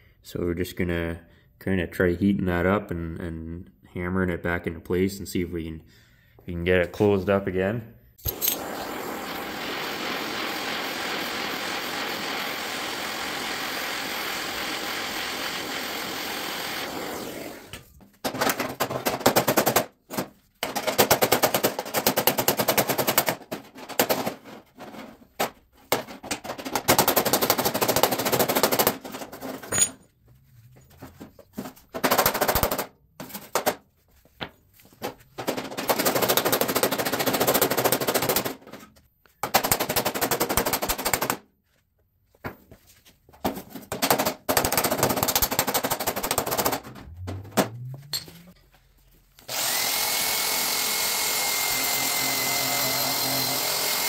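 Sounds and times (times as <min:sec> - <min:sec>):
welding crackling: 0:08.3 - 0:15.5
torch hissing: 0:08.3 - 0:16.2.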